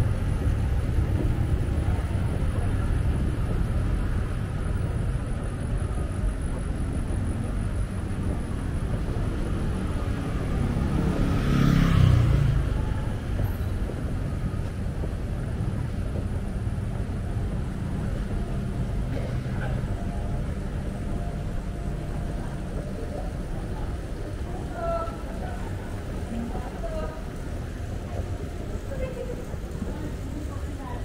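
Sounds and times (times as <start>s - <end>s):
street traffic hum: 0.0s - 31.0s
motor vehicle passing close: 10.3s - 13.2s.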